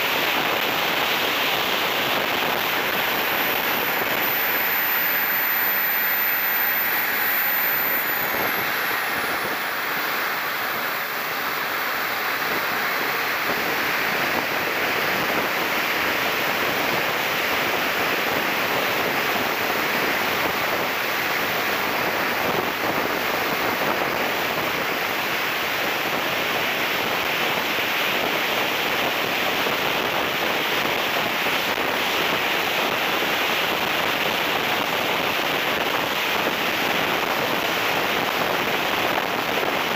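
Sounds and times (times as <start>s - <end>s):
high whine gliding down: 0.2s - 26.1s.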